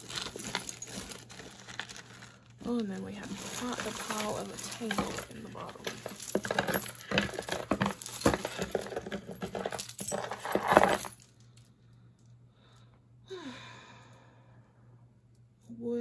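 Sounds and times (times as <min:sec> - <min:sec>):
jewelry clinking and jangling: 0:00.0 - 0:11.7.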